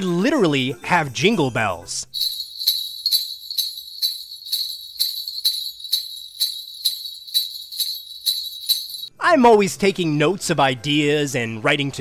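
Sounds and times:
jingle bells shaken: 0:02.1 - 0:09.1.

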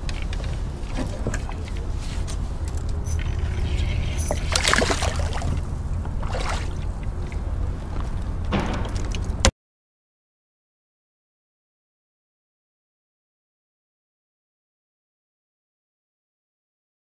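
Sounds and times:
steady low rumble: 0:00.0 - 0:09.5
water splashing from thrashing fish: 0:03.2 - 0:07.1.

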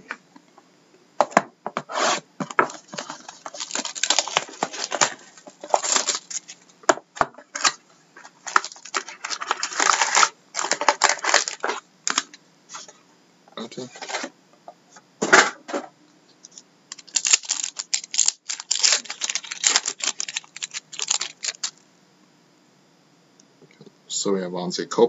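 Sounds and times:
foil packs rustling: 0:02.4 - 0:06.6, 0:07.4 - 0:12.2, 0:16.9 - 0:21.8
plastic shrink wrap crinkling: 0:02.5 - 0:06.7, 0:07.5 - 0:12.2, 0:16.5 - 0:21.8.

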